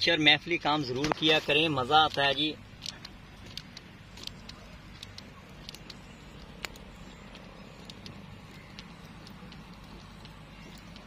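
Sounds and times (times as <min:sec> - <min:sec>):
charcoal fire crackling: 0:00.9 - 0:11.0.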